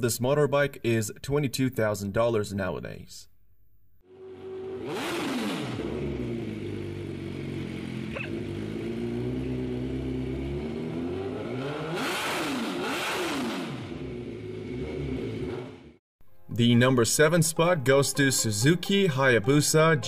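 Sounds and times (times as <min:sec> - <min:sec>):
motorcycle engine revving: 0:04.0 - 0:16.0.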